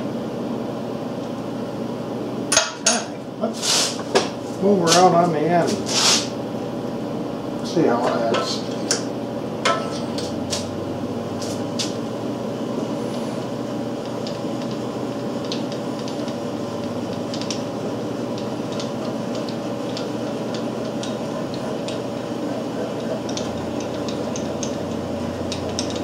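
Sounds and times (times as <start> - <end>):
handwheel clicks and ticks: 23.3 - 26.0.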